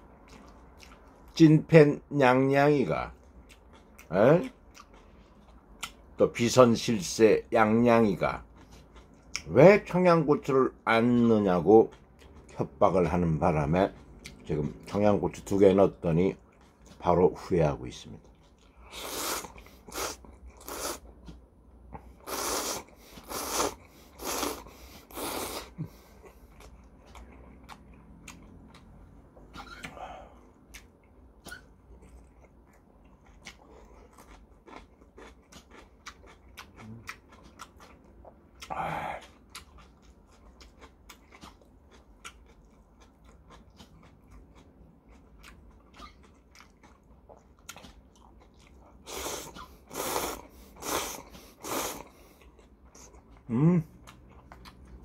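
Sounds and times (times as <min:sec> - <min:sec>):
chewing with crisp crunches: 0:00.0 - 0:01.7, 0:02.3 - 0:55.0
noodle slurping: 0:18.8 - 0:21.0, 0:22.2 - 0:25.8, 0:49.0 - 0:52.2.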